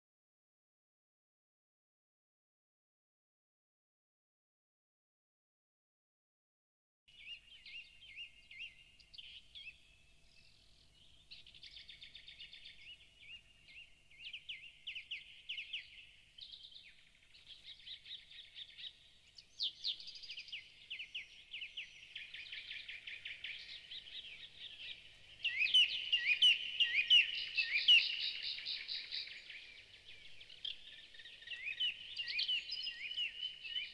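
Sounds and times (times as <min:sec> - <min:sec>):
songbird chorus trills and chirps: 0:07.1 - 0:33.9.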